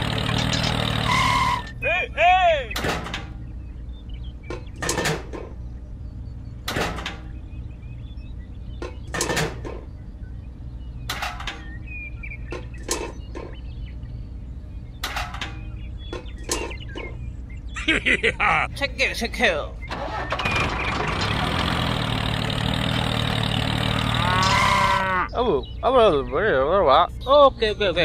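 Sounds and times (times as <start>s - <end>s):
steady low hum: 3.2s - 19.1s.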